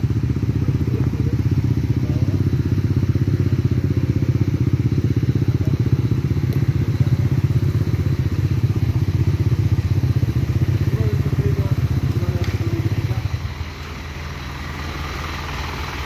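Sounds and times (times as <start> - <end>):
motorcycle engine idling: 0.0 - 16.0
truck engine idling: 0.0 - 16.0.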